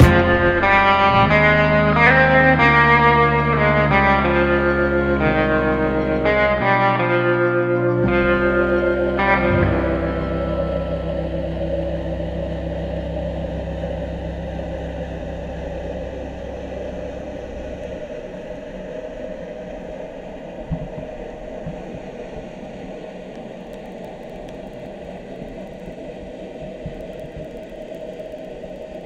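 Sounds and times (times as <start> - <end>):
low rumble: 0.0 - 22.8
muffled underwater noise: 0.0 - 29.0.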